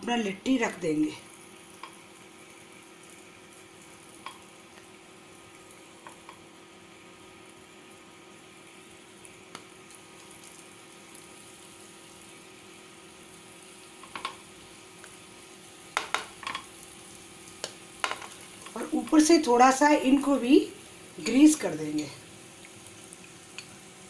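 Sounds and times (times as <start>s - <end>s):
oil sizzling in a pan: 0.0s - 24.0s
dough knocking against pan: 16.0s - 16.6s.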